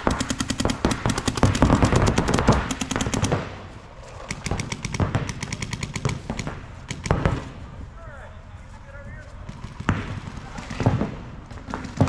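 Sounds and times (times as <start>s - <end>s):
paintball markers firing: 0.0s - 7.6s.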